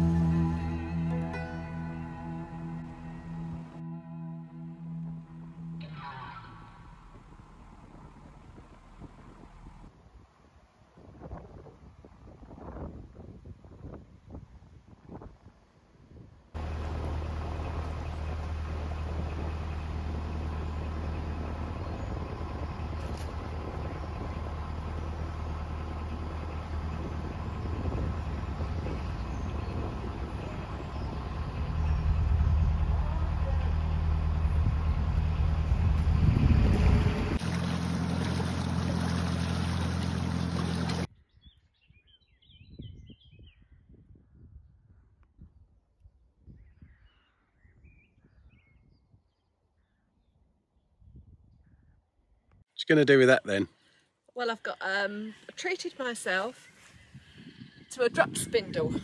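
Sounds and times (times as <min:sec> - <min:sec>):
diesel engine droning: 0:00.0 - 0:09.9, 0:16.6 - 0:41.1.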